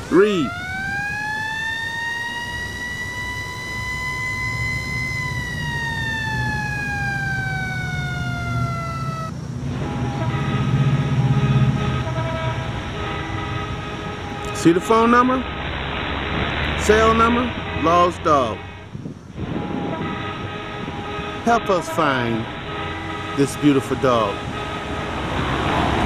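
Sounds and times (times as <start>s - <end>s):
siren wailing: 0.0s - 9.3s
faint steady tones: 0.0s - 10.3s.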